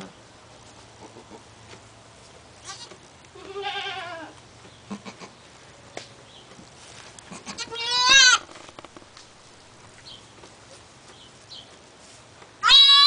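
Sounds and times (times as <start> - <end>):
goat bleating: 2.6 - 5.4, 7.3 - 8.5, 12.6 - 13.0
straw rustling: 6.5 - 12.6.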